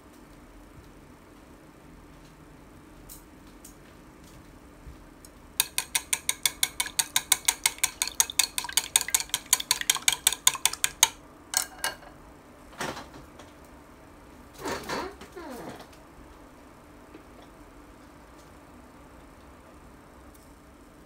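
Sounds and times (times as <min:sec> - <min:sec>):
chopsticks beating eggs in bowl: 0:05.6 - 0:12.1.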